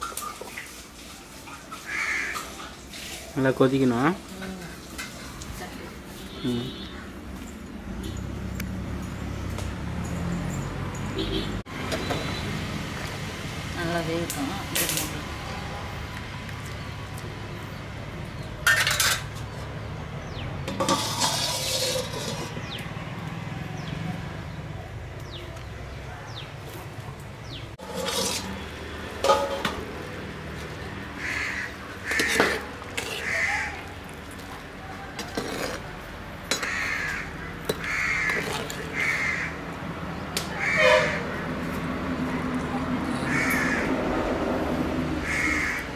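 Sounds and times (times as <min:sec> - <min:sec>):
crows cawing: 0:01.8 - 0:02.5, 0:31.1 - 0:33.9, 0:36.5 - 0:39.6, 0:40.5 - 0:41.4, 0:43.2 - 0:44.0, 0:45.2 - 0:45.9
metal ladle clanking in pot: 0:20.7 - 0:22.6, 0:27.8 - 0:28.6, 0:29.2 - 0:29.8.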